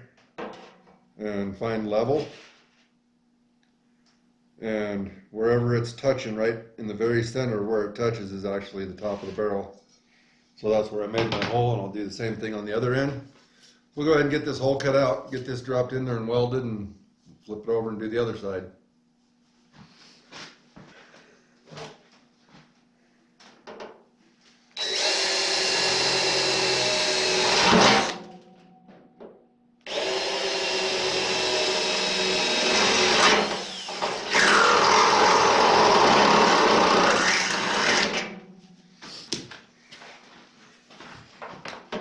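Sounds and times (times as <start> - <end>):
cordless drill boring into steel: 24.8 - 28.2, 29.9 - 38.3.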